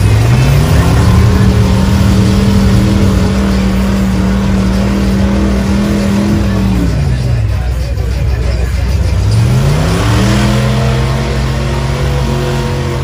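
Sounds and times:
truck engine revving: 0.0s - 13.0s.

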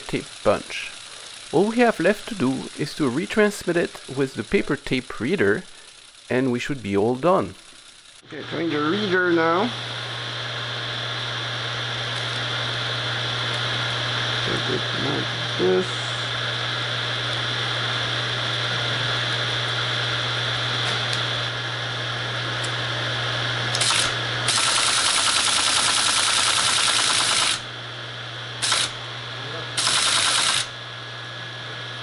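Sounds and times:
teletype rapid chatter: 0.0s - 8.2s, 23.8s - 27.6s, 28.6s - 29.0s, 29.8s - 30.7s
teletype motor humming: 0.0s - 32.0s.

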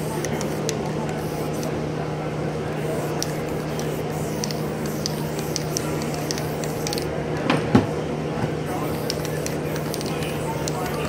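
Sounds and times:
aerosol spray can spraying: 0.0s - 1.7s, 2.8s - 7.1s, 8.7s - 11.0s.

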